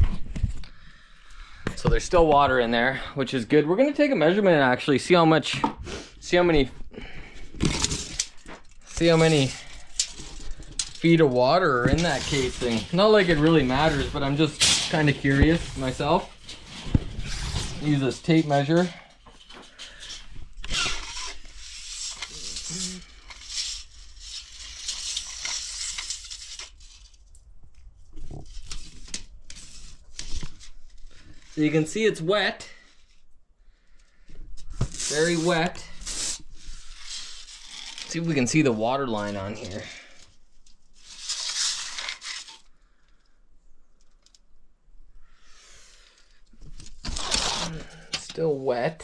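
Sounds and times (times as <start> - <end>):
tape measure scraping against pipe: 7.6 - 27.1, 34.9 - 38.4, 41.0 - 42.7
tape measure blade scraping: 20.7 - 27.0.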